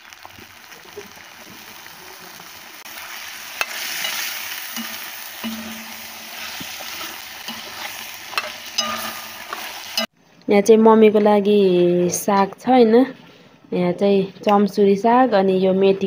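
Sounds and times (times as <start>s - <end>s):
meat sizzling in a wok: 0.0s - 10.1s.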